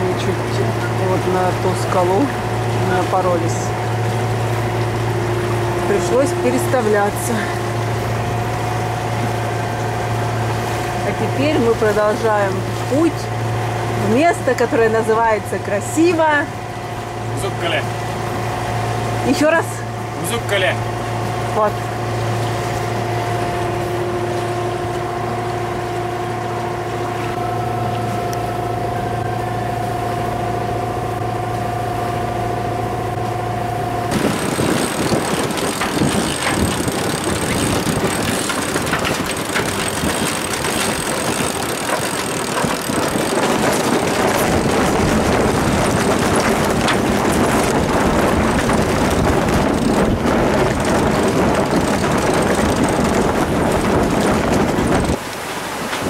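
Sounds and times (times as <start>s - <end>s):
diesel engine humming: 0.0s - 55.2s
waves washing: 0.0s - 56.0s
wind buffeting microphone: 34.0s - 56.0s.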